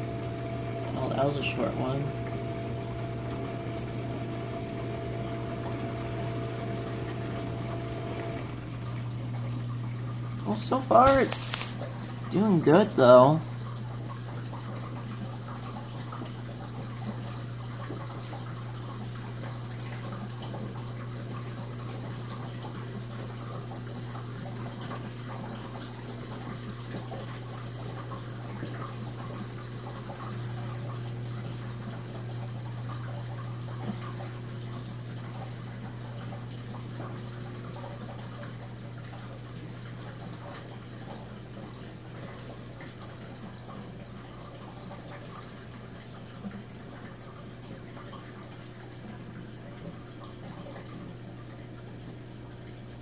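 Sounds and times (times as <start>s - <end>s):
dishwasher pump motor humming: 0.0s - 53.0s
water washing inside dishwasher: 0.0s - 53.0s
water spraying and splashing: 10.4s - 12.2s.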